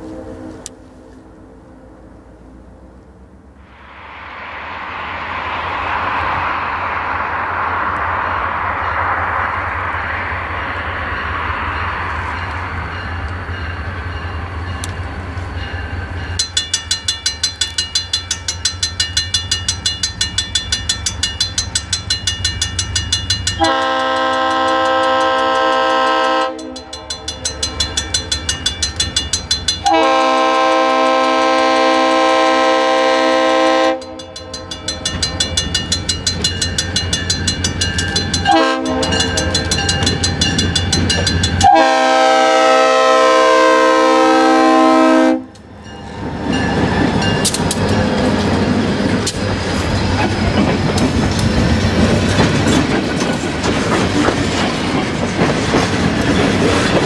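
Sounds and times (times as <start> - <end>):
train air horn blasts: 0.0 - 1.3, 23.6 - 27.0, 29.8 - 34.3, 38.4 - 39.6, 41.6 - 45.6
crossing bell ringing: 10.0 - 30.9, 33.7 - 42.1, 45.5 - 49.0
train wheels clacking over rails: 15.6 - 32.0, 34.0 - 42.1, 46.1 - 57.0.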